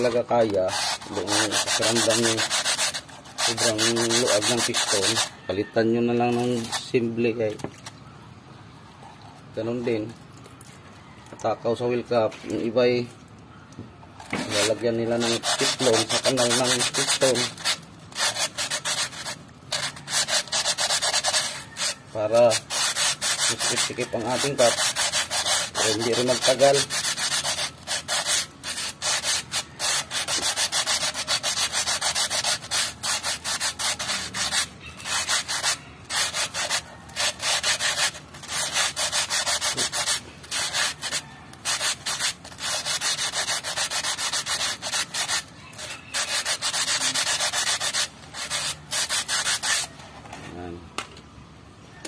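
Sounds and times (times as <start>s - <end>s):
sandpaper scraping metal bore: 0.0s - 7.6s, 14.2s - 50.6s.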